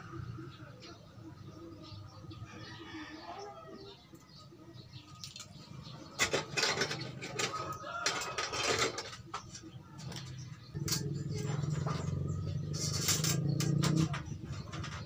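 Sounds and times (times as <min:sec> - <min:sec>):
wire and tools clinking on metal: 0:05.0 - 0:15.0.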